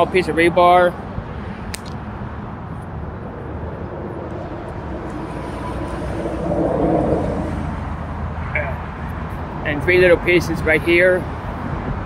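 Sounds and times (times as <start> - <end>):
motor vehicle engine and tyres: 0.0 - 12.0.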